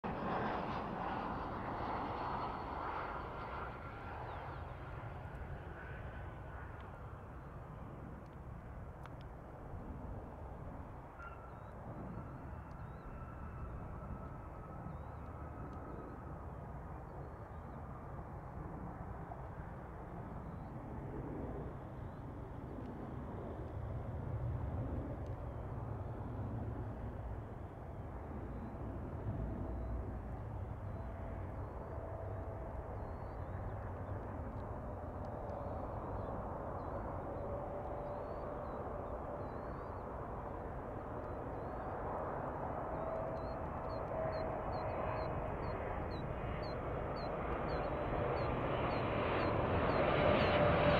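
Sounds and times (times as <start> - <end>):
distant jet engine rumble and whine: 0.0 - 50.9
faint bird chirps: 11.2 - 15.4.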